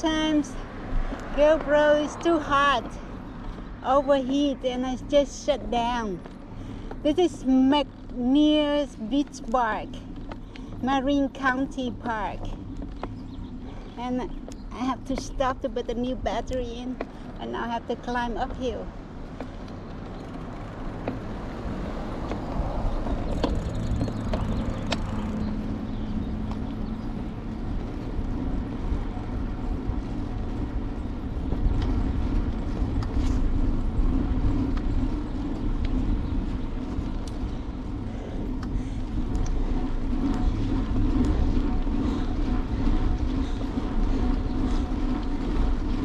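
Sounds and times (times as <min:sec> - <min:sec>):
car passing: 0:00.0 - 0:05.3, 0:18.8 - 0:46.0
bicycle rolling on asphalt: 0:00.0 - 0:46.0
wind rumble on camera: 0:00.0 - 0:46.0
steady low hum: 0:20.8 - 0:46.0.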